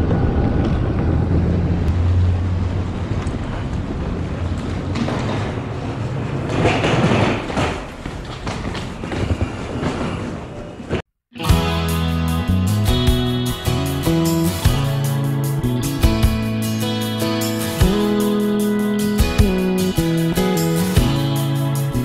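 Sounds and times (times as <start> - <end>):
train rumbling on rails: 0.0 - 11.0.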